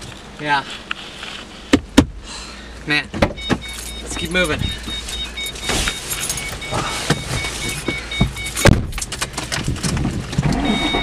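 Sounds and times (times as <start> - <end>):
car warning chime beeping: 2.9 - 9.2, 10.4 - 11.0
car door shutting: 3.1 - 11.0.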